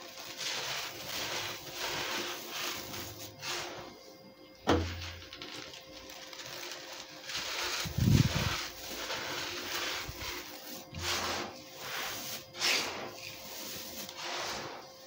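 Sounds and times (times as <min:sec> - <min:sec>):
grit falling onto sand: 0:04.6 - 0:14.9.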